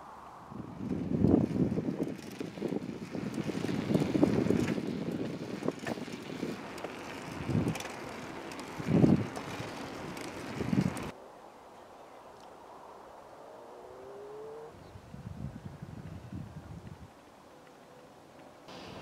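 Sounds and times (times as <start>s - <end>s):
wind buffeting microphone: 0.0s - 11.2s, 14.7s - 17.3s.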